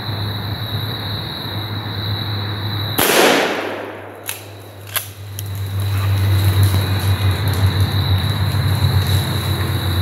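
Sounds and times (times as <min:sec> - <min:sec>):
shotgun blast: 0:03.0 - 0:04.6.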